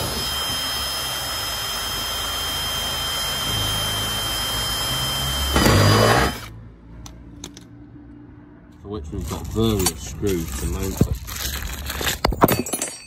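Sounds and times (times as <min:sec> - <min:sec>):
electric drill whining: 0:00.0 - 0:06.5.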